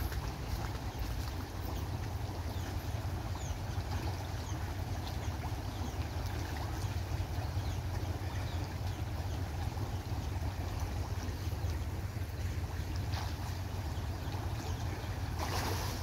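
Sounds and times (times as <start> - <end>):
fish splashing at water surface: 15.2 - 16.0.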